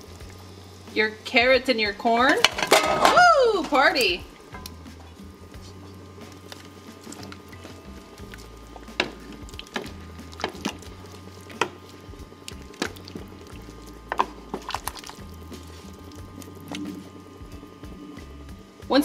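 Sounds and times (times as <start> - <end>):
low steady hum: 0.0 - 19.0
kitchen knocks and clicks: 2.3 - 3.8.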